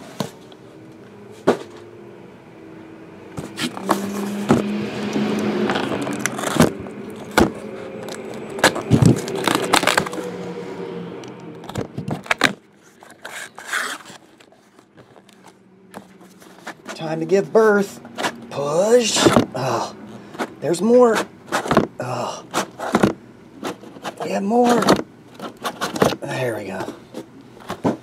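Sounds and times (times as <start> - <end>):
cardboard rustling: 3.3 - 4.8, 5.6 - 10.4, 11.7 - 28.0
blade slitting packing tape: 8.0 - 10.3, 12.2 - 14.5.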